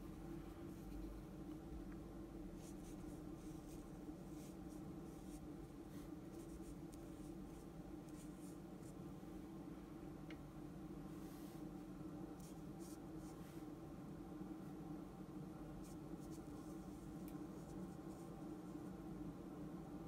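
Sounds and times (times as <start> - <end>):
steady low hum: 0.0 - 20.0
brush pen scratching on paper: 2.6 - 9.0.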